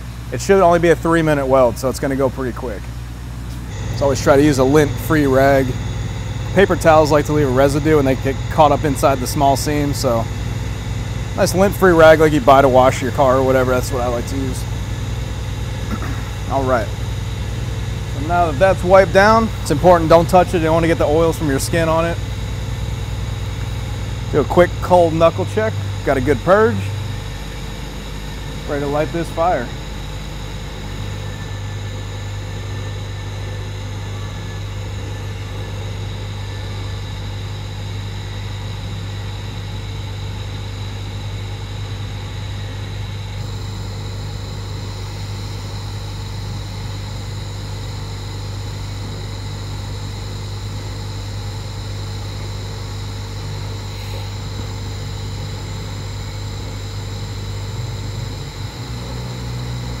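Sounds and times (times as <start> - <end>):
welder low hum: 0.0 - 60.0
welding arc hiss: 2.8 - 38.1, 43.1 - 59.9.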